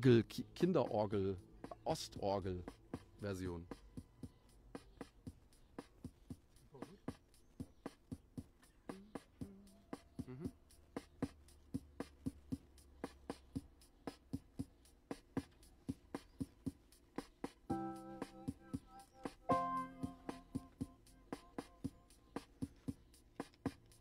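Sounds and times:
ticking beat of sharp clicks: 11.1s - 24.0s
faint toy organ notes: 17.7s - 22.4s.

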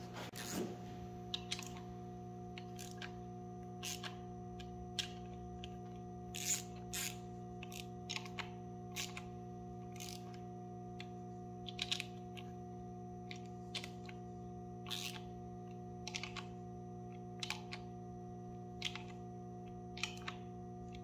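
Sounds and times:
steady low hum: 0.0s - 21.0s
metallic clicks of socket spinning: 2.5s - 3.2s, 3.8s - 9.3s.

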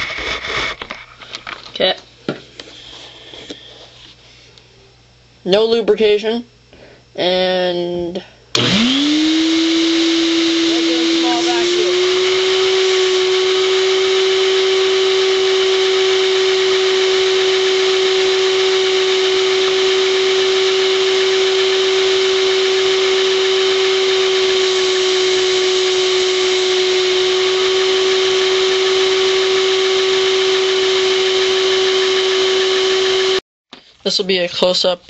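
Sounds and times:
vacuum cleaner motor whine: 8.5s - 33.4s.

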